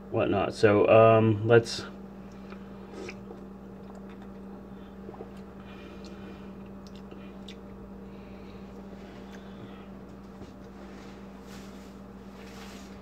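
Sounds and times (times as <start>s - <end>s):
low hum: 0.0s - 13.0s
faint sipping and swallowing: 2.2s - 9.8s.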